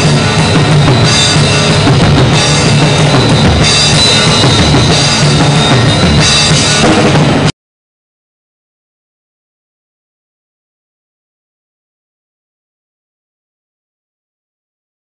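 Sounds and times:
cymbals crashing: 0.0s - 7.5s
drums pounding: 0.0s - 7.5s.

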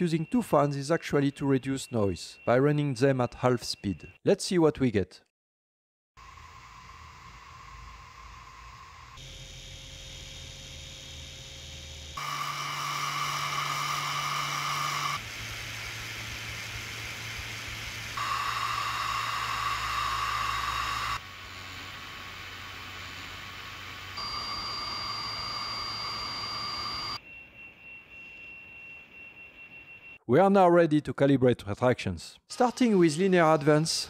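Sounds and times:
cooling fans whirring: 6.3s - 27.2s.

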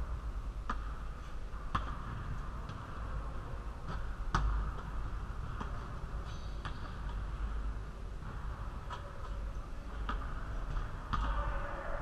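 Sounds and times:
low hum of hall: 0.0s - 12.0s
basketball hitting hard surfaces: 0.6s - 11.6s
sneaker squeak: 6.3s - 6.9s.

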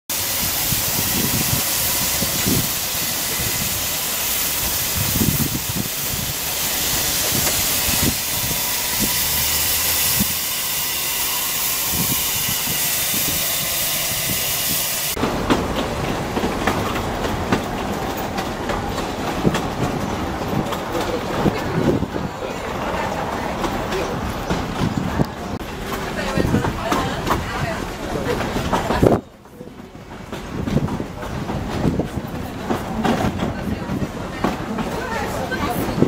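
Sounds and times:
steam hissing from locomotive: 0.1s - 15.2s
train wheels clattering on rails: 0.1s - 36.0s.

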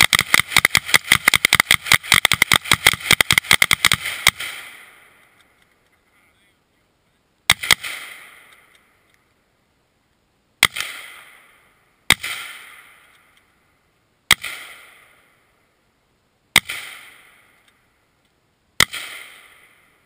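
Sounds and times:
gunshots: 0.0s - 5.2s, 7.5s - 8.7s, 10.6s - 13.2s, 14.3s - 15.4s, 16.5s - 17.6s, 18.8s - 20.0s.

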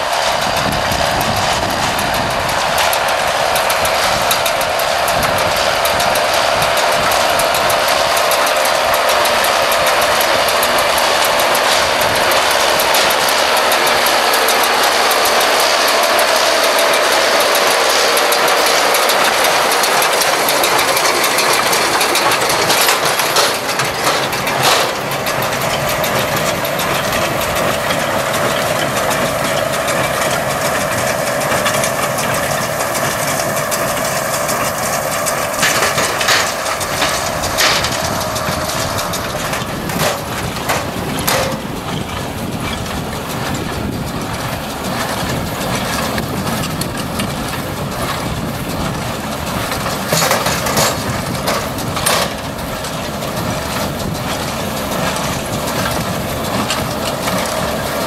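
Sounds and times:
constant machine whine: 0.0s - 58.0s
tractor machinery drone: 0.0s - 58.0s
baler mechanism clanking: 0.1s - 58.0s.

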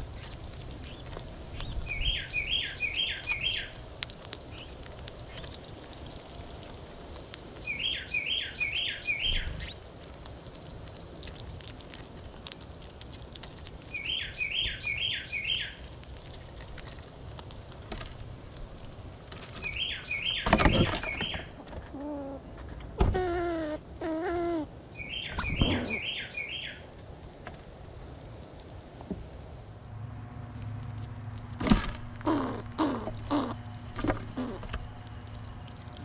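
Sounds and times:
squirrel husking seeds clicks: 0.0s - 22.4s, 27.5s - 28.9s, 30.6s - 36.0s
songbird whistling song: 1.6s - 3.7s, 7.6s - 9.8s, 13.9s - 15.8s, 19.6s - 21.6s, 24.9s - 26.8s
short low bird calls: 23.2s - 26.8s.

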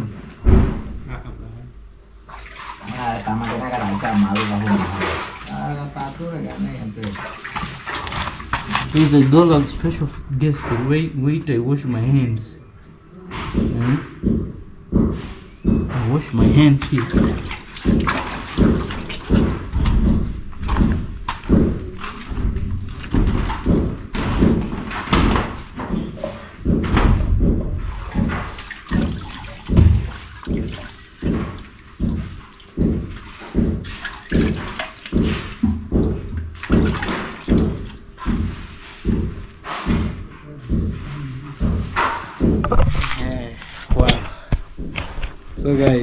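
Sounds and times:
water splashing: 2.2s - 11.7s, 15.9s - 25.9s, 26.8s - 44.1s
thumps: 13.3s - 46.0s.

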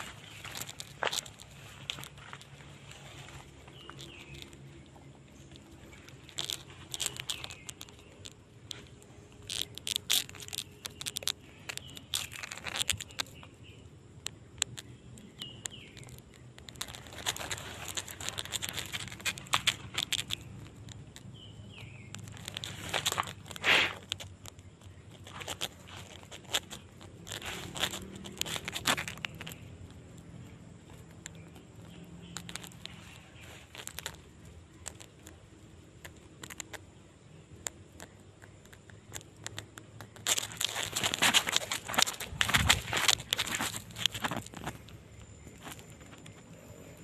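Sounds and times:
rustling through undergrowth: 0.0s - 13.8s, 14.7s - 36.8s, 37.7s - 47.0s
bird chirps: 0.0s - 47.0s
footsteps: 40.2s - 44.9s.

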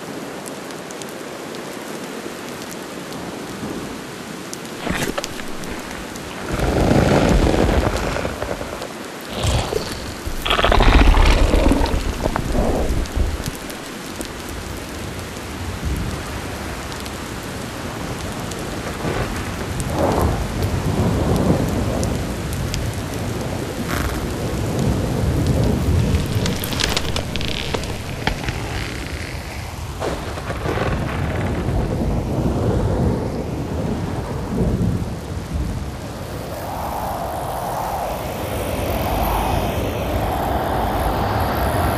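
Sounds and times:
rain-like hiss: 0.0s - 41.9s
deep rolling rumbles: 4.8s - 14.4s, 25.5s - 29.8s.

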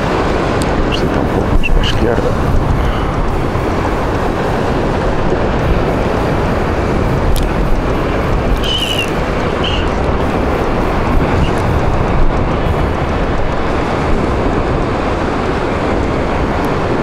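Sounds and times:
sea waves washing: 0.0s - 17.0s
wind on microphone: 0.0s - 17.0s
short high chirps: 8.6s - 9.9s.

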